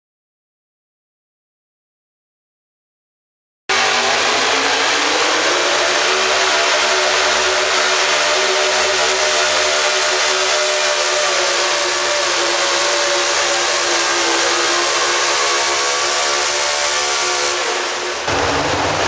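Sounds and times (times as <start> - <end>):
tractor engine running loud: 3.7 - 19.0.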